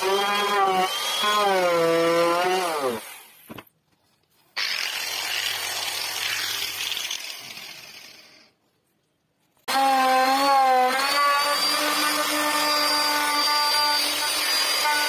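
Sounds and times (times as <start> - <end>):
electric carving tool whining: 0.0 - 3.2, 9.7 - 15.0.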